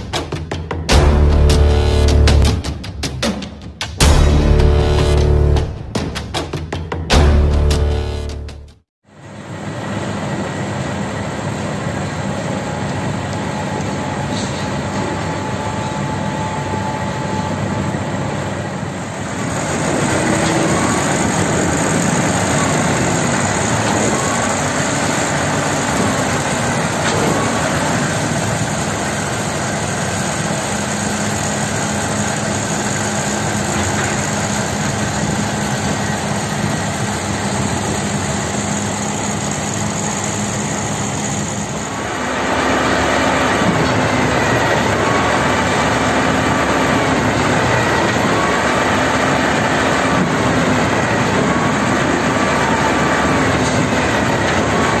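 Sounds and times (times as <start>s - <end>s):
diesel engine running under load: 0.9s - 2.6s, 4.0s - 5.8s, 7.1s - 55.0s.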